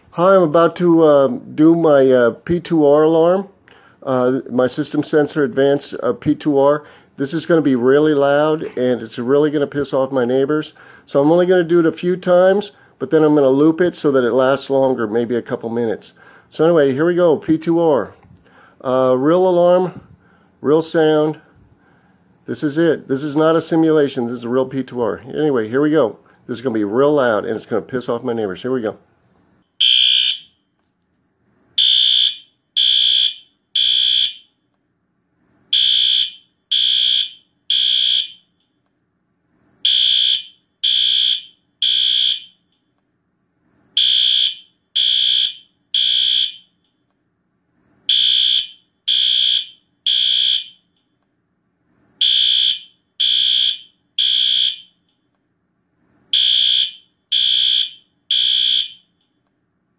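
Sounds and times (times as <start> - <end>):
high-pitched alarm horn blasts: 29.8 - 30.6, 31.8 - 34.5, 35.7 - 38.5, 39.8 - 42.6, 44.0 - 46.7, 48.1 - 50.8, 52.2 - 55.0, 56.3 - 59.1.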